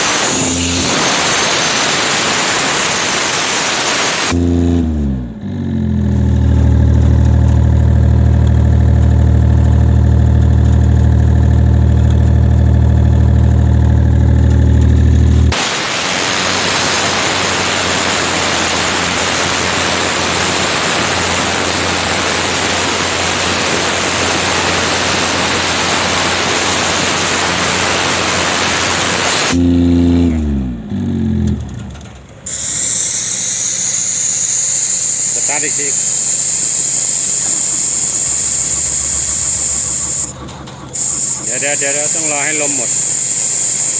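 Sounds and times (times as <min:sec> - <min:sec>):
hissing rush of air: 0:00.0 - 0:04.4, 0:15.5 - 0:29.6, 0:32.5 - 0:43.9
compressed air blasting: 0:00.0 - 0:04.9, 0:15.3 - 0:30.4, 0:32.4 - 0:43.9
air compressor engine running: 0:00.0 - 0:43.9.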